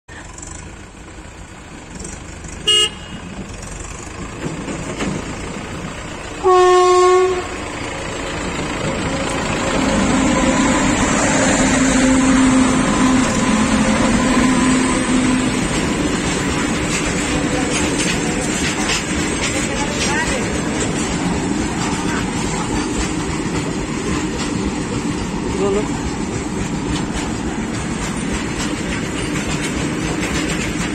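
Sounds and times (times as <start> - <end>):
train rumbling past: 0.1 - 30.9
locomotive horn: 2.6 - 3.4, 6.4 - 7.8, 9.0 - 15.8.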